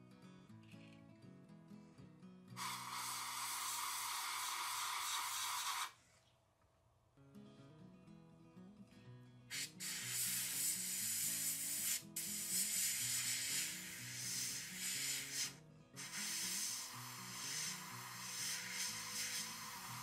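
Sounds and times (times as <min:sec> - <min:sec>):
airbrush spraying hiss: 0:02.6 - 0:06.0, 0:09.5 - 0:20.0
soft background music: 0:07.3 - 0:20.0.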